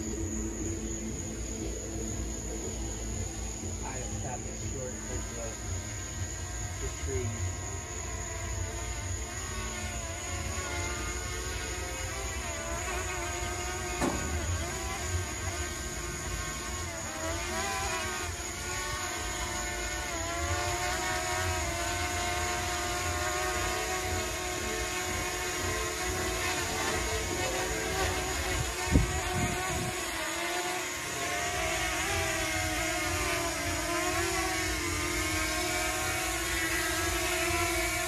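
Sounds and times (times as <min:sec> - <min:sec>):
drone propellers whining: 0:00.0 - 0:38.0
wind rumble on microphone: 0:28.4 - 0:30.2.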